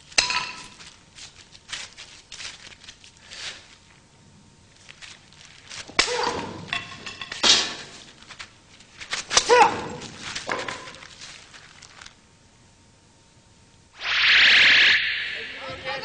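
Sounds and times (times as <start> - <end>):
karate strikes landing: 5.9 - 6.7, 9.2 - 11.0.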